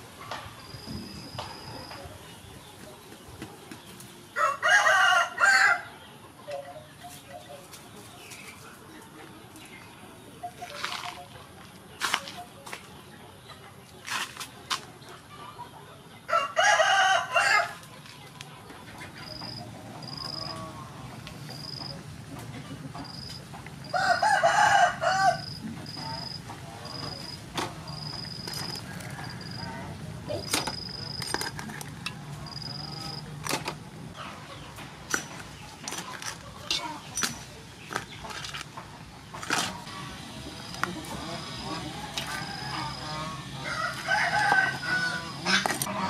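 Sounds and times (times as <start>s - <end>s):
rooster crowing: 4.4s - 5.9s, 16.3s - 17.8s, 23.8s - 25.6s, 28.7s - 30.0s, 41.2s - 46.0s.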